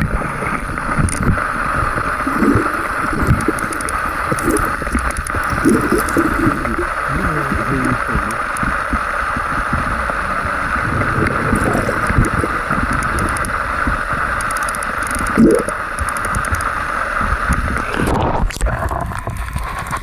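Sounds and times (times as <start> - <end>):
fast-flowing stream rushing: 1.4 - 8.6, 9.8 - 13.9.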